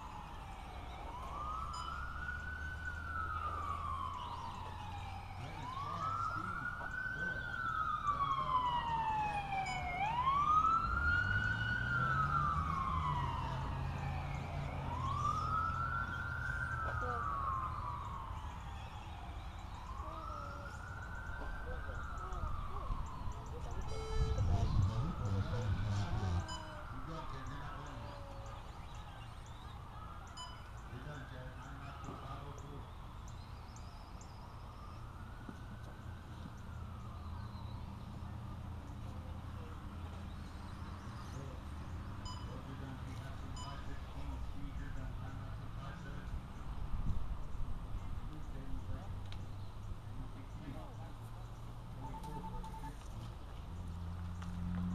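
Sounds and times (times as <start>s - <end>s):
siren wailing: 0.0s - 38.8s, 52.0s - 53.1s.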